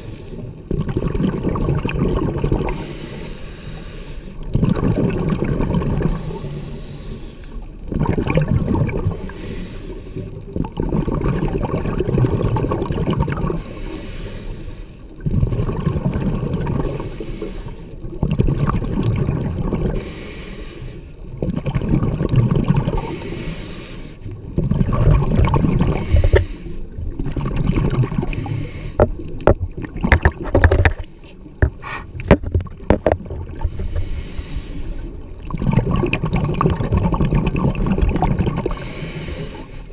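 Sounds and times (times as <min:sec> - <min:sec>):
exhaled bubbles rushing: 0:00.0 - 0:02.9, 0:04.4 - 0:06.2, 0:07.8 - 0:09.3, 0:10.4 - 0:13.6, 0:15.2 - 0:17.0, 0:18.0 - 0:20.0, 0:21.3 - 0:23.3, 0:24.4 - 0:39.3
regulator breathing hiss: 0:02.7 - 0:04.4, 0:06.1 - 0:07.7, 0:09.1 - 0:10.4, 0:13.6 - 0:15.0, 0:16.9 - 0:18.0, 0:20.0 - 0:21.2, 0:23.0 - 0:24.3, 0:26.0 - 0:26.9, 0:28.3 - 0:29.0, 0:33.7 - 0:35.2, 0:38.7 - 0:39.9.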